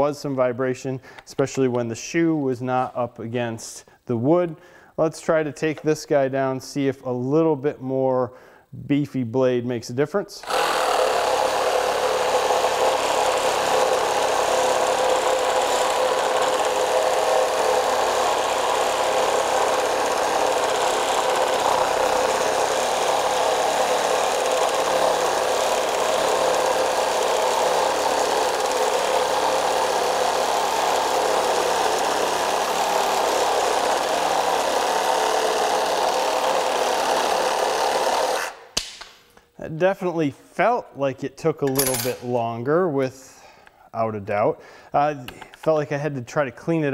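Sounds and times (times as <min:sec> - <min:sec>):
reciprocating saw cutting wood: 0:10.4 - 0:38.7.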